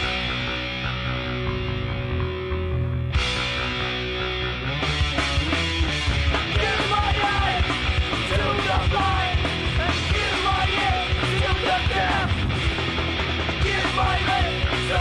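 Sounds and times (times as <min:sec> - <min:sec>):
punk band playing: 0:00.0 - 0:15.0
shouted vocals: 0:06.5 - 0:12.4, 0:13.6 - 0:15.0.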